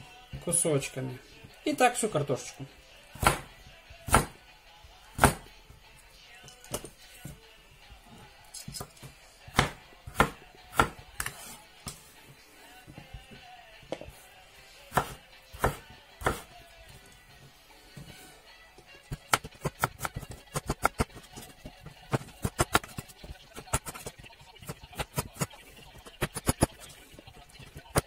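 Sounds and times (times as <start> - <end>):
knife chopping on wooden board: 3.2 - 3.5, 4.1 - 4.4, 5.2 - 5.5, 9.5 - 11.6, 14.9 - 16.5, 19.1 - 25.5, 26.1 - 26.8.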